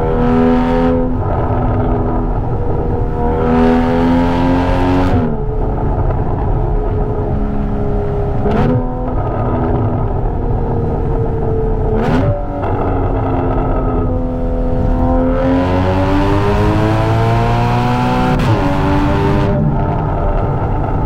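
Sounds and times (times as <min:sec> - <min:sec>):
car engine revving hard: 0:00.0 - 0:05.4, 0:11.9 - 0:21.0.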